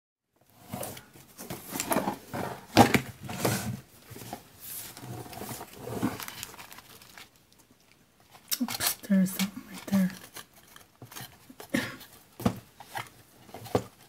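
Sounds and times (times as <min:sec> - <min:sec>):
plastic tray rustling: 0:00.6 - 0:07.4.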